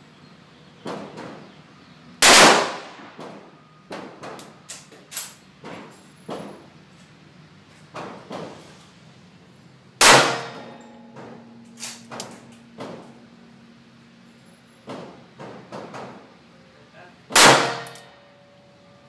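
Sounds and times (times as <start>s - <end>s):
faint gunshots: 2.2s - 3.4s
revolver shots with ringing: 2.2s - 3.4s, 10.0s - 11.7s, 17.3s - 18.4s.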